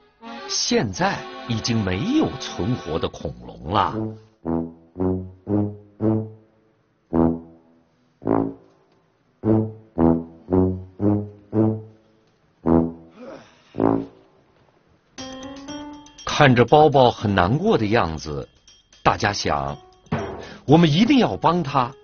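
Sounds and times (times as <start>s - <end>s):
low brass instrument tune: 3.9s - 6.5s, 7.1s - 8.8s, 9.4s - 13.2s, 13.8s - 14.3s.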